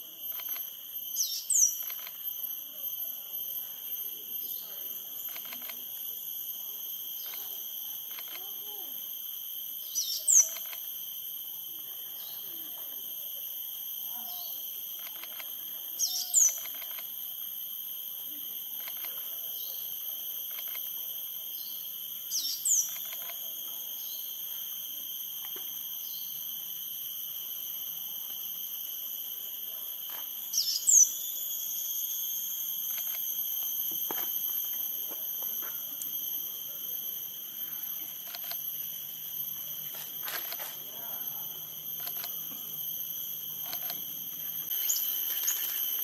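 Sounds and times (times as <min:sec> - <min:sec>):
sunbird calling: 0:01.2 - 0:02.0, 0:09.8 - 0:10.7, 0:16.0 - 0:16.8, 0:21.7 - 0:23.2, 0:30.6 - 0:31.2.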